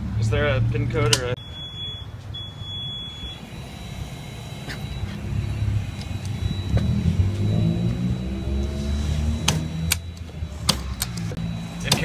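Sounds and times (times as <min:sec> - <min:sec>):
vehicle engine accelerating: 0:03.3 - 0:12.0.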